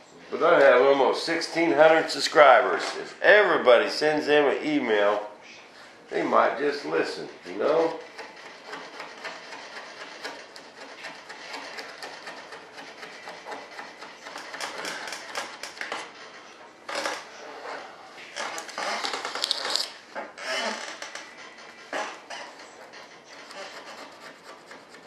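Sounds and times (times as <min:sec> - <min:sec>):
hand sanding rasp: 0:06.6 - 0:16.2, 0:21.8 - 0:25.0.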